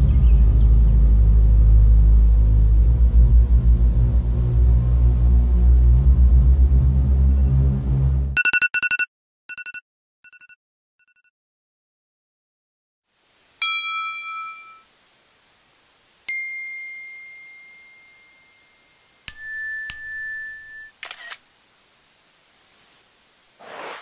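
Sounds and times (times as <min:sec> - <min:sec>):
bell-like dings: 0:13.6 - 0:14.9, 0:16.3 - 0:21.0.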